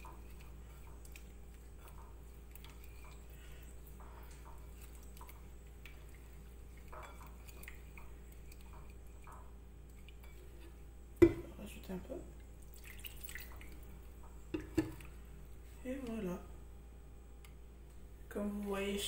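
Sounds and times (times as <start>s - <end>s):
hand squelching marinade: 0.0s - 10.7s, 12.6s - 15.2s
steady low hum: 0.0s - 19.0s.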